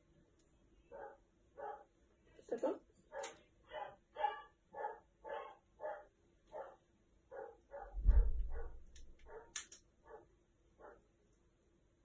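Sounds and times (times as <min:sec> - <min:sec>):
loud low thud: 0:08.0 - 0:08.9.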